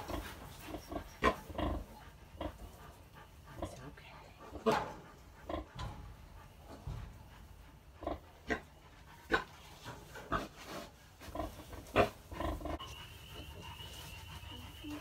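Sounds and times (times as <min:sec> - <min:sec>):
pig grunting: 0:00.0 - 0:06.1, 0:07.9 - 0:09.5, 0:10.1 - 0:12.8
high-pitched steady tone: 0:12.7 - 0:15.0.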